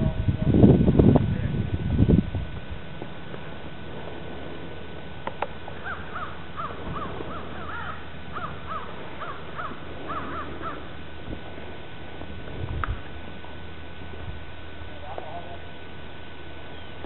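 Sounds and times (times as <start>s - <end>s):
crows cawing: 5.7s - 11.0s.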